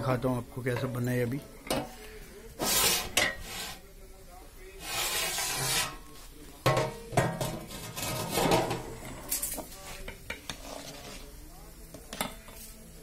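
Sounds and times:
metal lid and ladle clanking on pot: 6.6s - 8.9s.

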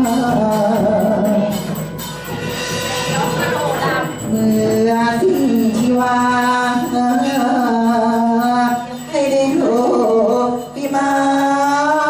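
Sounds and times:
man singing into a microphone: 0.0s - 1.8s, 4.1s - 12.0s.

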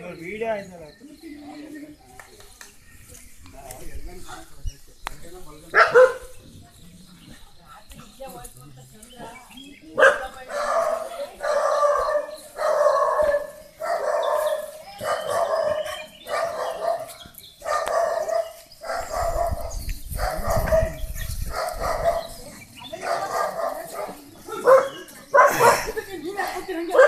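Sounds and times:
dog barking: 5.8s - 6.3s, 10.0s - 22.4s, 23.0s - 25.9s.

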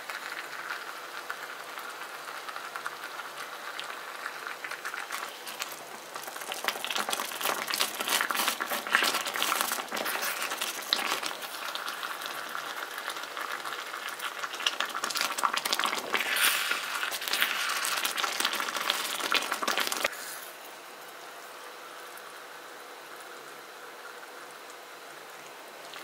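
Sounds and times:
thick sauce bubbling: 0.0s - 20.4s
wooden spatula scraping: 7.1s - 11.4s, 16.0s - 19.2s.

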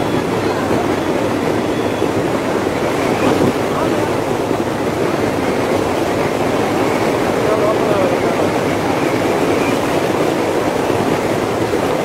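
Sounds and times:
diesel train running: 0.0s - 12.0s
sea surf rushing: 0.0s - 12.0s
wind: 0.0s - 12.0s.

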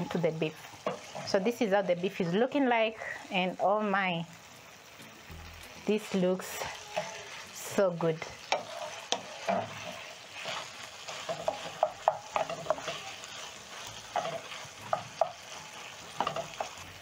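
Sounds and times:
food sizzling in frying pan: 0.0s - 17.0s
wooden spatula scraping pan: 0.7s - 1.5s, 6.6s - 16.8s.

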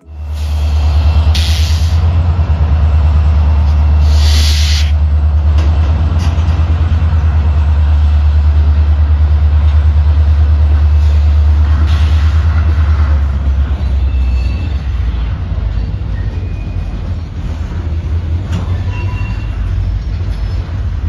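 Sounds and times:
diesel locomotives rumbling: 0.0s - 21.0s
air hiss bursts: 1.3s - 2.0s, 4.0s - 5.0s.

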